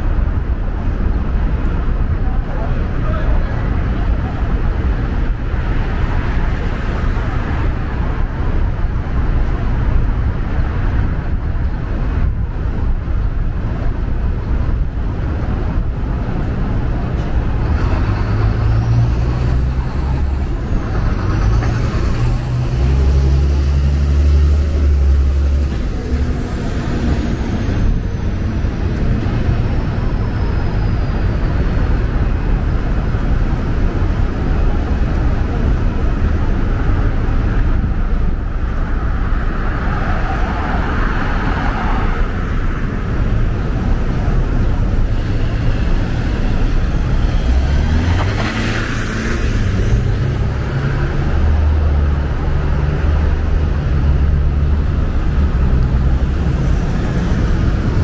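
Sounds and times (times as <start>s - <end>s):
deep engine rumble: 0.0s - 58.0s
vehicles passing: 0.0s - 58.0s.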